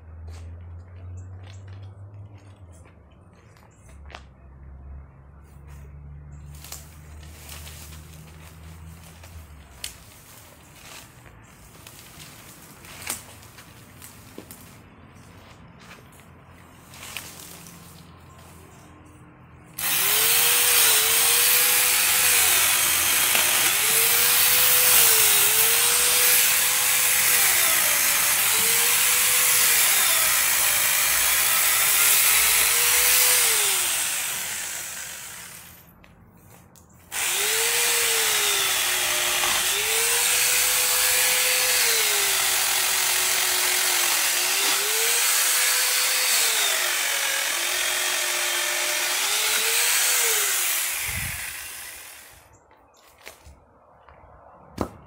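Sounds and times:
chain cutting wood: 0:19.7 - 0:35.8, 0:37.1 - 0:52.4
chainsaw attachment motor whining: 0:19.7 - 0:35.9, 0:37.1 - 0:52.5.

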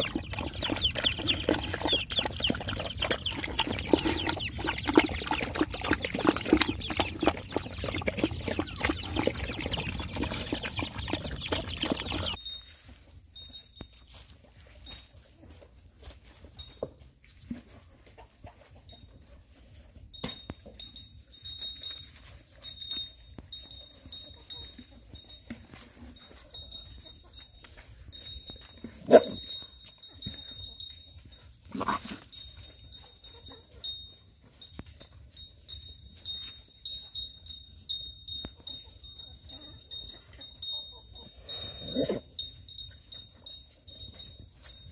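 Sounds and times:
dog lapping and slurping: 0:00.0 - 0:12.4.

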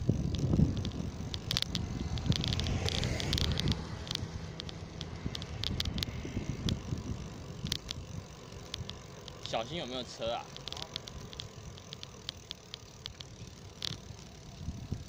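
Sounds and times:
wind rumble on microphone: 0:00.0 - 0:09.3, 0:14.5 - 0:15.0
bicycle clicks and rattles: 0:00.0 - 0:15.0.

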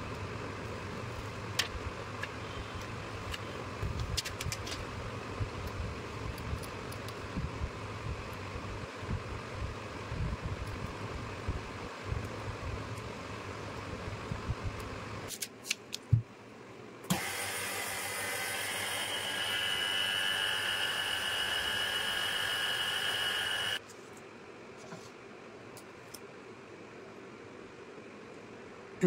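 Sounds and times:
vacuum pump hiss and whine: 0:17.1 - 0:23.8.

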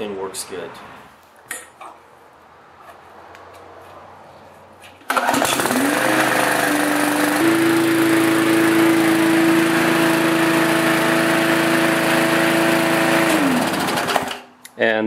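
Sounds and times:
push mower engine running: 0:05.0 - 0:14.5.

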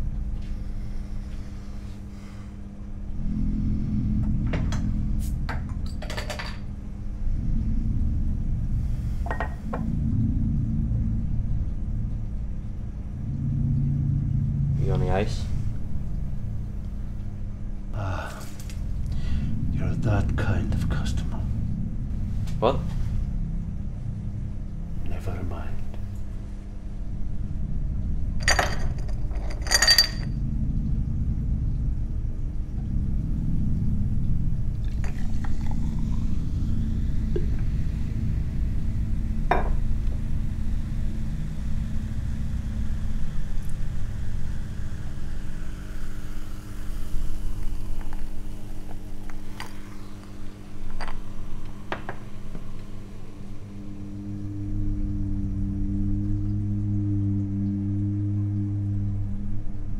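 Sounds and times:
low steady rumble: 0:00.0 - 0:59.9
glassware clinking: 0:28.4 - 0:30.3.

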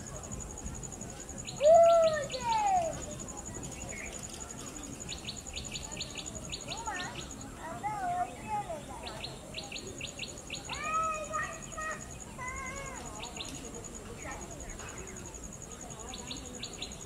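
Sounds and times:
birds chirping and warbling: 0:03.5 - 0:12.3, 0:13.0 - 0:17.0.

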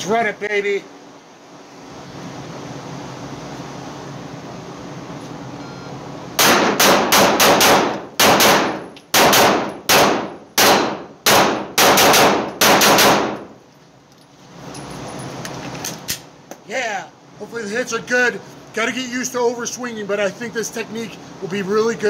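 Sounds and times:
pistol shots ringing indoors: 0:06.4 - 0:13.5.

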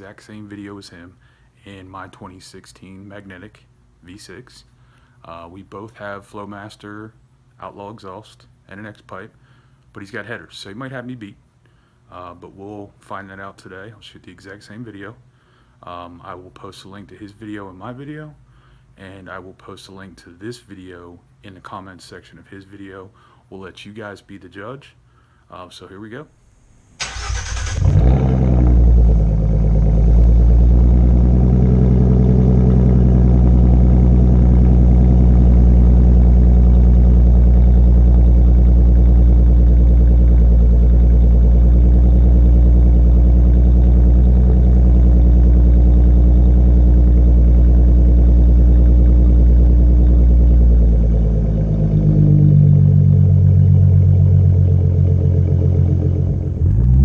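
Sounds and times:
car engine idling: 0:27.0 - 0:57.0.

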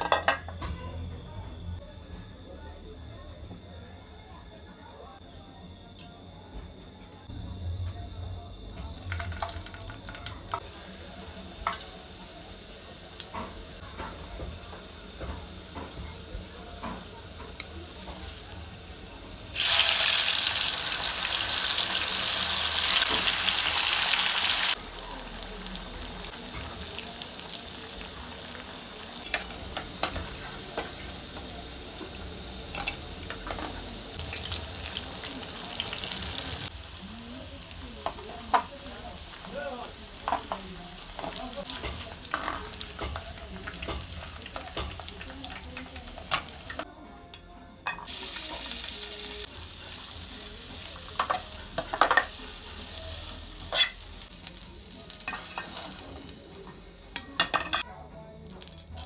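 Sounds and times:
tofu sizzling in hot oil: 0:17.6 - 0:46.8, 0:48.1 - 0:57.5
metal spoon clinking on pan: 0:57.1 - 0:57.8.

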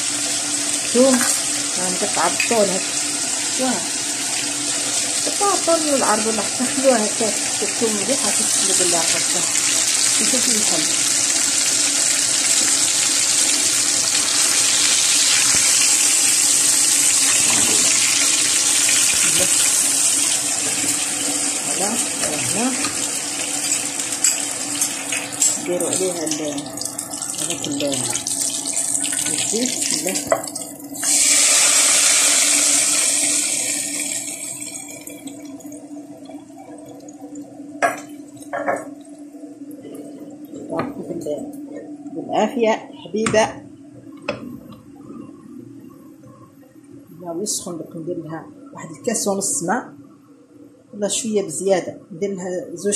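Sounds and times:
meat sizzling in oil: 0:00.0 - 0:35.5.

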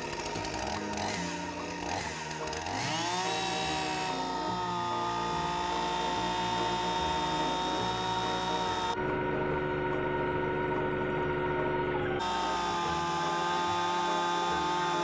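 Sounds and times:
chainsaw cutting rubber tyre: 0:00.0 - 0:09.0, 0:12.1 - 0:15.0.

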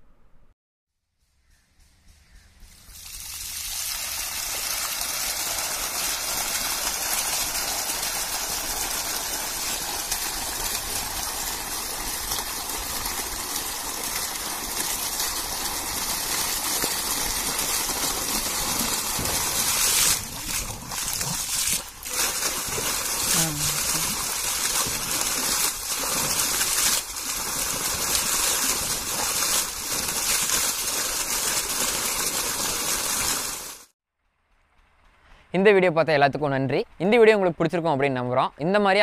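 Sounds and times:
water gushing and splashing: 0:03.0 - 0:33.9.

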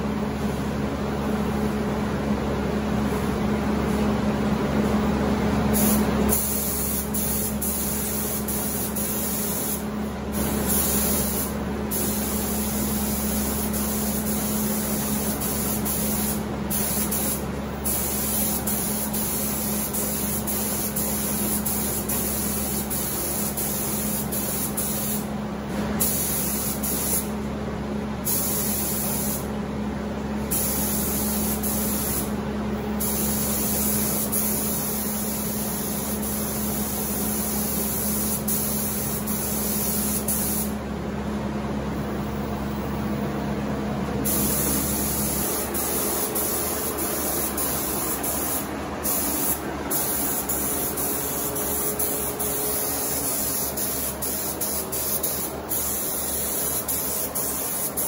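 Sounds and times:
spray gun hissing: 0:05.8 - 0:25.3, 0:26.0 - 0:27.3, 0:28.3 - 0:29.4, 0:30.5 - 0:32.3, 0:33.0 - 0:40.8, 0:44.2 - 0:58.0.

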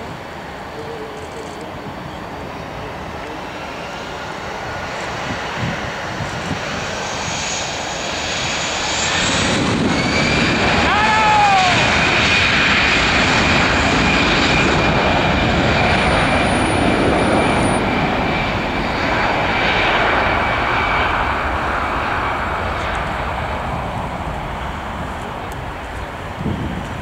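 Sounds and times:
high engine whine: 0:00.0 - 0:27.0
jet engines roaring at takeoff: 0:00.0 - 0:27.0.

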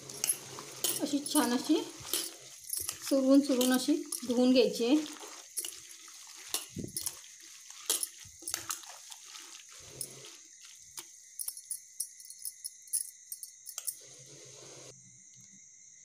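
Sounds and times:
hands squeezing leaves in water: 0:00.0 - 0:11.6.

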